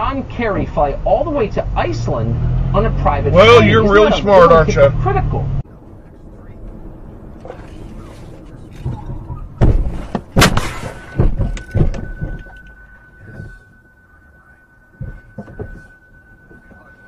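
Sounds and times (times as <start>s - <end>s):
soft thumps: 8.8s - 14.0s, 14.9s - 17.0s
car crash impact bangs: 9.6s - 12.2s
steady high beep: 10.9s - 17.0s.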